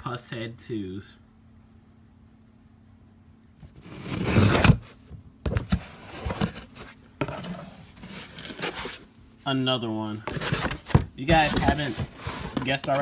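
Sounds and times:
boxes knocking and rustling: 3.6s - 9.1s, 10.2s - 13.0s
cardboard scraping: 3.6s - 9.1s, 10.2s - 13.0s.

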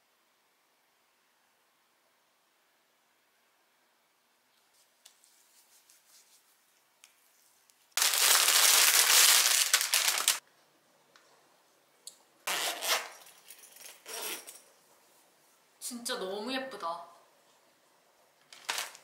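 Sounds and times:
packaging and fabric crinkling: 8.0s - 10.4s, 18.5s - 19.0s.

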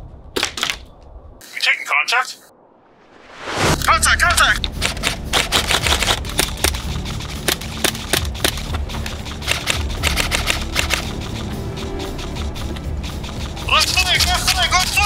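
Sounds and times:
low rumble: 2.5s - 15.0s
rifle gunfire: 4.8s - 8.6s.

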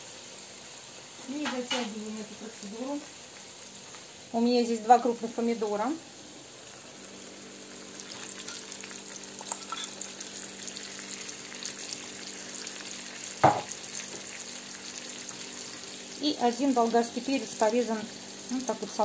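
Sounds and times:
meat and onion sizzling in a pan: 0.0s - 19.0s
knock: 13.4s - 13.7s.

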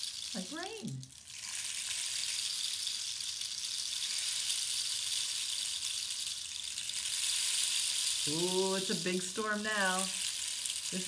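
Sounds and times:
rain stick hissing: 0.0s - 11.0s.

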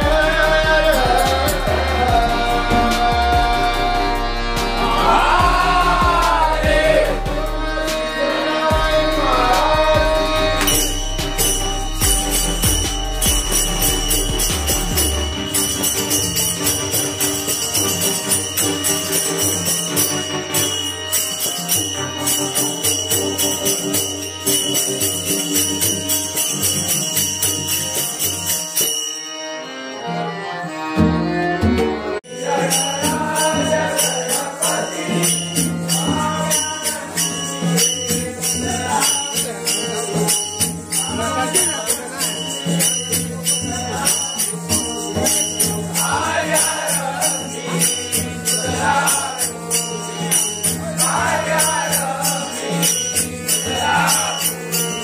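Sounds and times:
men singing in chorus: 0.0s - 13.9s, 32.3s - 55.0s
barrel drum beat: 8.7s - 18.1s
hand cymbals clashing: 9.1s - 29.6s, 32.3s - 55.0s.

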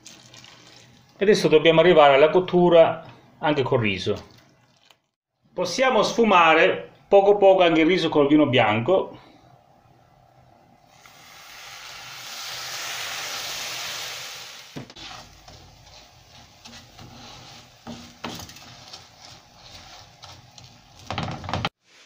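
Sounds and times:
wine hissing in hot pan: 10.9s - 18.3s
wooden spoon stirring rice: 14.8s - 22.0s.

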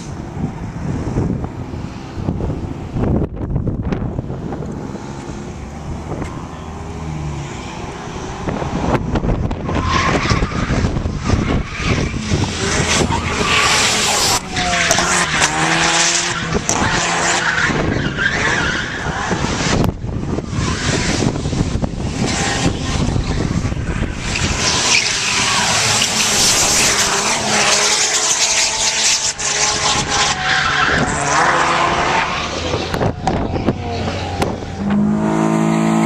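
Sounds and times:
car engine revving: 0.8s - 36.0s
tyres squealing and skidding: 9.4s - 34.9s.

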